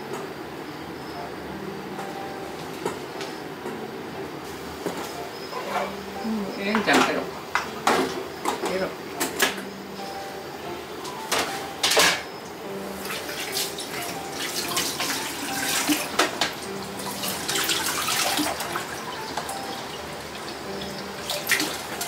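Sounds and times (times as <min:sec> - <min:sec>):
tap water running into sink: 0:13.0 - 0:22.0.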